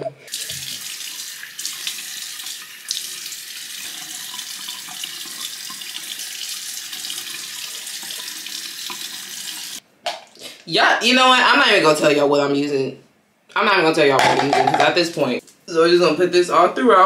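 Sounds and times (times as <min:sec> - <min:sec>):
faucet running water: 0:00.3 - 0:09.8.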